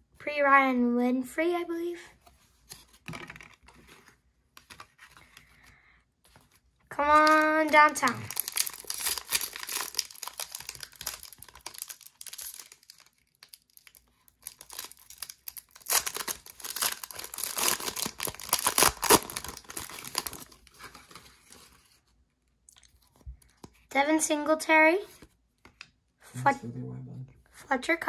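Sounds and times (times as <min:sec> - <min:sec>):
foil wrapper tearing and crinkling: 0:07.0 - 0:21.6.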